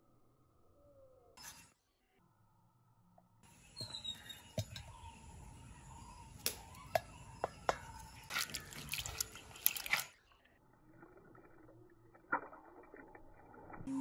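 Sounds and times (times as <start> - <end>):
lentils rubbed in water: 8.2 - 10.2.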